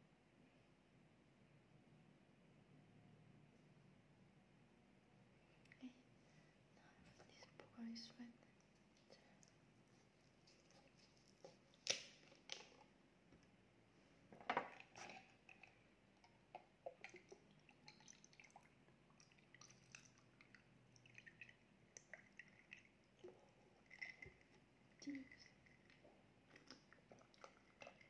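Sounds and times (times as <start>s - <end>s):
plastic bottle cap cracking open: 11.8s - 12.8s
ice ticking and dripping: 14.7s - 28.0s
drink pouring over ice: 19.2s - 28.0s.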